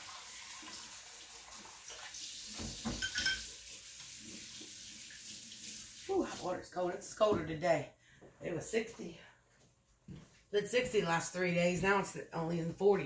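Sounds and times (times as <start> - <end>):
tap running water into sink: 0.0 - 6.5
dishes clinking: 2.8 - 3.6.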